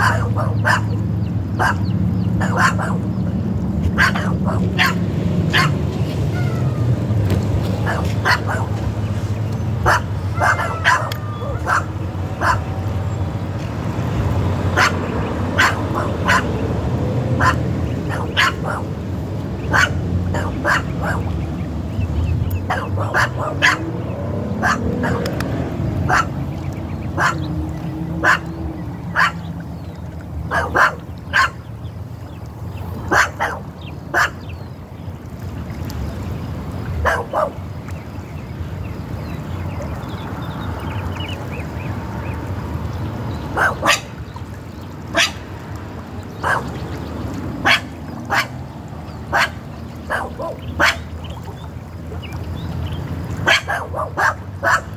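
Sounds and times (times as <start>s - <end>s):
dog barking: 0.0s - 1.0s, 1.6s - 1.8s, 2.4s - 3.0s, 4.0s - 5.8s, 7.8s - 8.7s, 9.8s - 12.7s, 14.8s - 15.0s, 15.6s - 16.5s, 17.4s - 18.9s, 19.7s - 21.2s, 22.7s - 23.9s, 24.6s - 25.3s, 26.1s - 26.3s, 27.2s - 27.4s, 28.2s - 28.5s, 29.2s - 29.4s, 30.5s - 31.6s, 33.1s - 34.4s, 37.0s - 37.6s, 43.5s - 44.1s, 45.2s - 45.4s, 46.4s - 46.7s, 47.6s - 48.5s, 49.3s - 51.1s, 53.4s - 54.9s.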